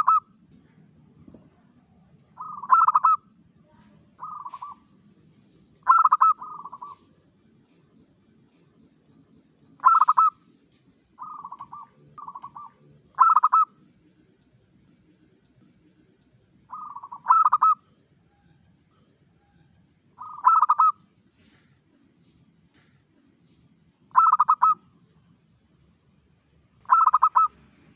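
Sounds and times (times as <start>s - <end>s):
dove cooing: 0.0s - 0.3s, 2.4s - 3.2s, 4.2s - 4.9s, 5.8s - 7.1s, 9.8s - 10.4s, 11.2s - 13.8s, 16.7s - 17.9s, 20.2s - 21.0s, 24.1s - 24.8s, 26.9s - 27.5s.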